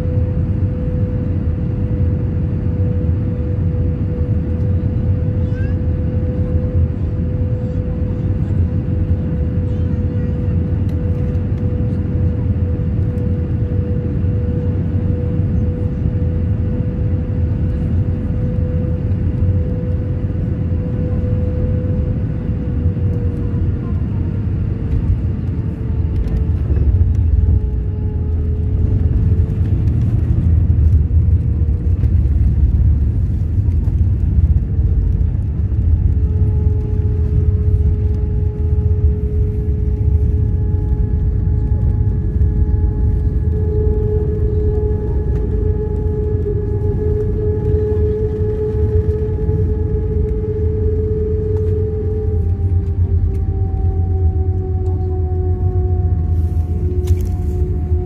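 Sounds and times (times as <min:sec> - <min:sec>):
jet engine and airflow rumble: 0:00.0 - 0:58.0
steady whine: 0:00.0 - 0:58.0.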